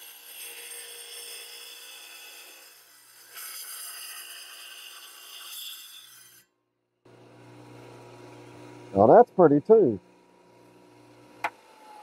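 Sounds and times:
rock saw cutting stone: 0:00.0 - 0:06.5.

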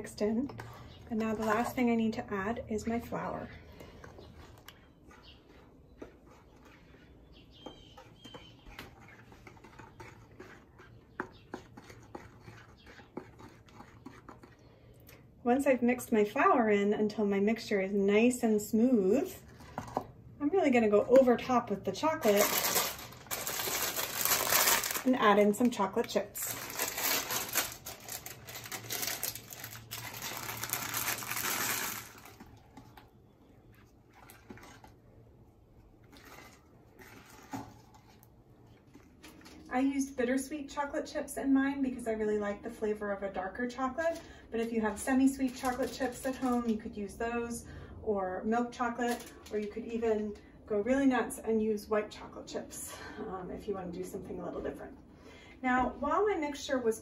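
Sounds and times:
wooden spoon scraping pan: 0:00.1 - 0:14.6
plastic bag crinkling: 0:22.1 - 0:33.0
chocolate chips rattling into pan: 0:26.4 - 0:32.4.

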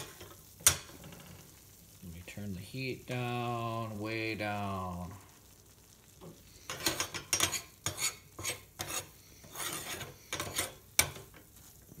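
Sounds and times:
metal spoon scraping a skillet: 0:06.6 - 0:11.9.

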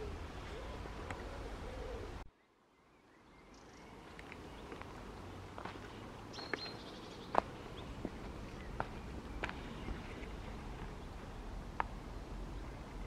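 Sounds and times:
pigeon cooing: 0:00.0 - 0:02.2.

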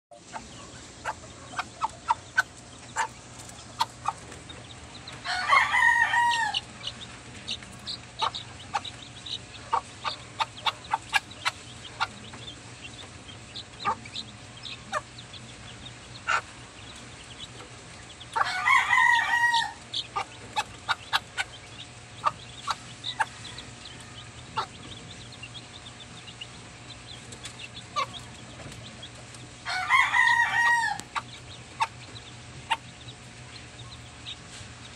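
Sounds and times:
rooster crowing: 0:05.2 - 0:06.7, 0:18.4 - 0:19.8, 0:23.1 - 0:24.4, 0:29.6 - 0:31.1.

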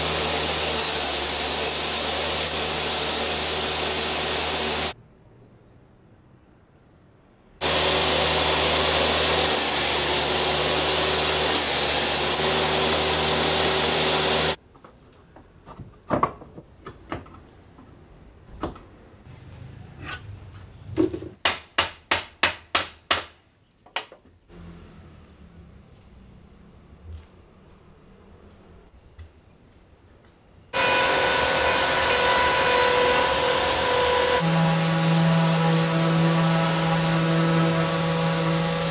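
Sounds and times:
table saw cutting wood: 0:00.0 - 0:05.0, 0:07.6 - 0:14.6, 0:30.8 - 0:38.9.

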